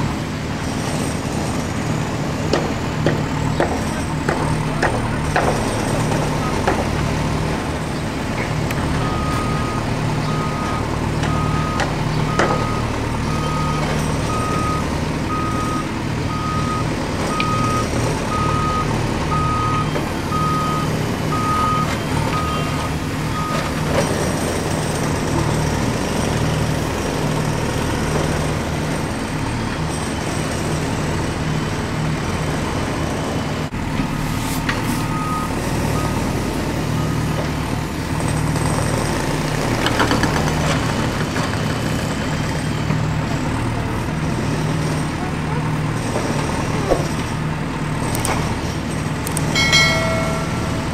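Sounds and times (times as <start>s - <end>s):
heavy machine engine rumble: 0.0s - 50.9s.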